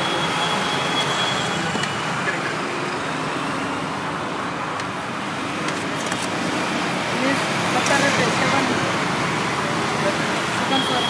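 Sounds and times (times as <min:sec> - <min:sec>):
roadside traffic noise: 0:00.0 - 0:11.0.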